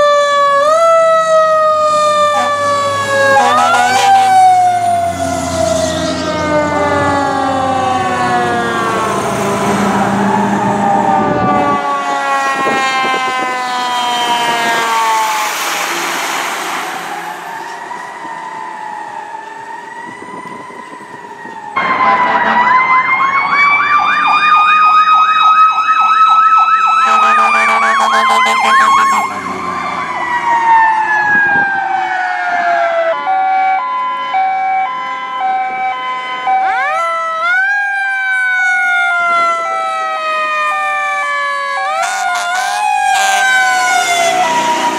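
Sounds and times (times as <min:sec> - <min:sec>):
alternating two-note siren: 0:00.0 - 0:44.9
fire truck sirens wailing: 0:00.0 - 0:44.9
rapid yelp siren: 0:00.0 - 0:44.9
air horn blast: 0:02.3 - 0:04.4, 0:21.8 - 0:22.8, 0:27.0 - 0:29.4, 0:41.9 - 0:44.7.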